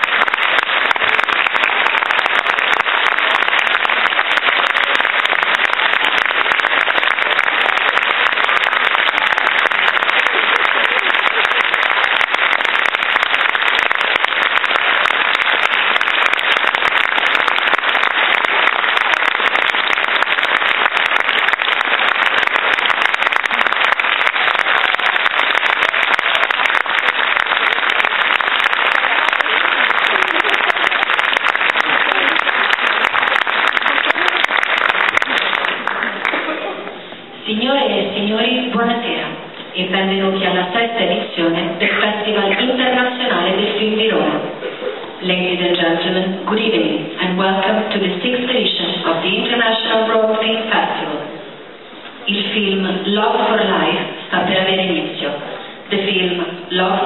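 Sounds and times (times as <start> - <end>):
audience applauding: 0.0 - 37.3.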